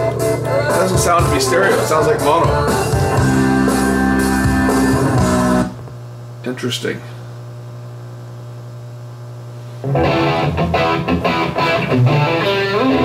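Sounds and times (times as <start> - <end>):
guitar music through radio: 0.0 - 5.9, 9.8 - 13.0
radio hum: 0.1 - 3.1.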